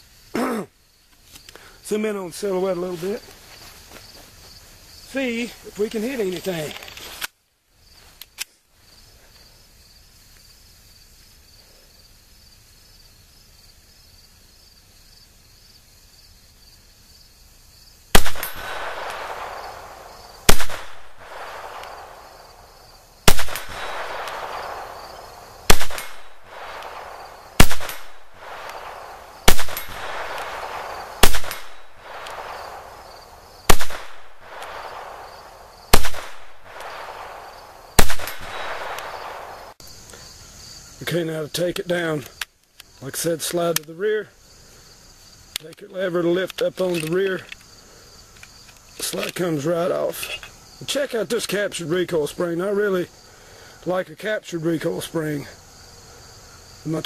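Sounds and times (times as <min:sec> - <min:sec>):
pistol shots: 0:18.2 - 0:22.6, 0:23.2 - 0:39.8.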